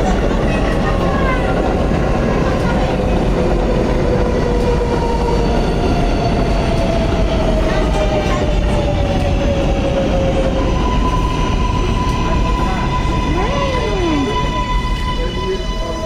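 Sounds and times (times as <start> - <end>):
train wheels rumbling on rails: 0.0 - 16.0
train whine falling in pitch: 11.8 - 16.0
high steady tone: 12.6 - 16.0.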